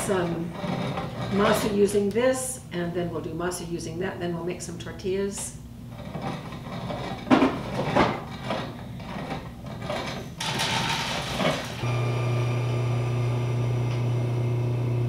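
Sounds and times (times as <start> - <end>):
grain mill grinding corn: 10.4 - 15.0.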